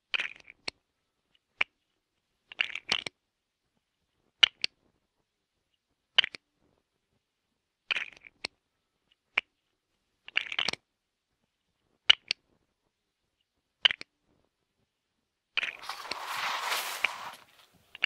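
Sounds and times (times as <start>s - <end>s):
plastic bricks clicking together: 10.3s - 10.8s.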